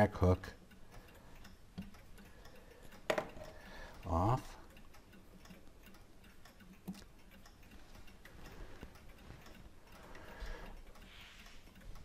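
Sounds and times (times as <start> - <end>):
tweezers clicking on clock levers: 0.0 - 12.0
soft handling noise: 7.8 - 10.0.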